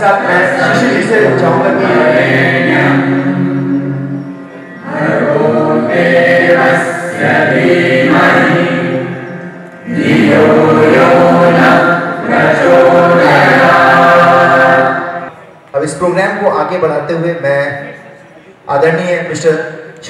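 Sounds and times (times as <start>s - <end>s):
choir singing a hymn: 0.0s - 15.3s.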